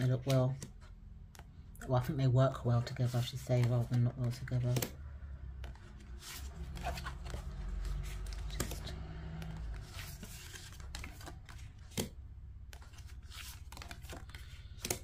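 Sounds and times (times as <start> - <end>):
cards clicking: 3.4 - 5.0, 5.6 - 15.0.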